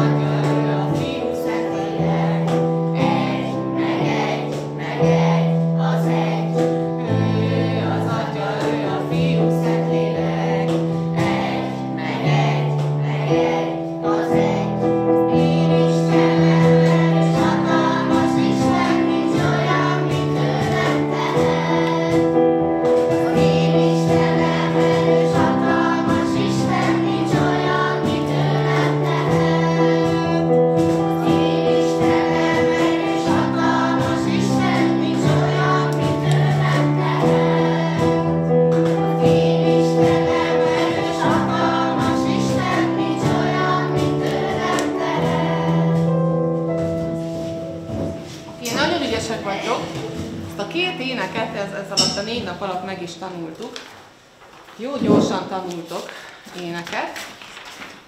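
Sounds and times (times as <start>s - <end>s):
children singing: 0.0s - 46.4s.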